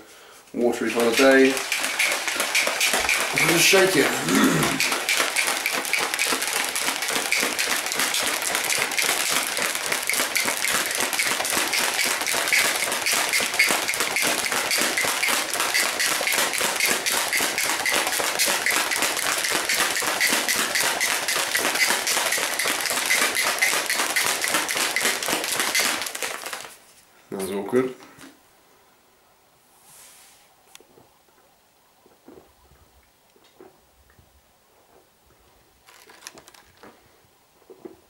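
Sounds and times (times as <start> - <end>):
plastic shaker bottle rattling: 0.7 - 26.8, 35.8 - 37.0.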